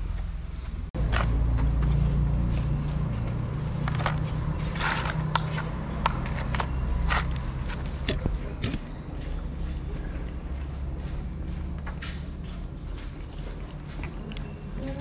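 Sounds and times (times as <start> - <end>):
cats chewing and smacking: 12.9 - 15.0.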